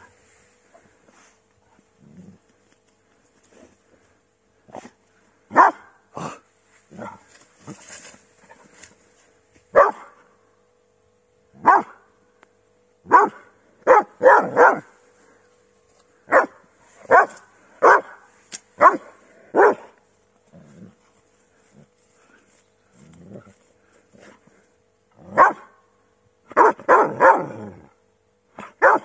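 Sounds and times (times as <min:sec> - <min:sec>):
dog barking: 0:05.5 - 0:06.0, 0:09.7 - 0:10.2, 0:11.6 - 0:12.0, 0:13.1 - 0:14.9, 0:16.3 - 0:18.2, 0:18.8 - 0:20.0, 0:25.3 - 0:25.7, 0:26.5 - 0:27.6, 0:28.6 - 0:29.0.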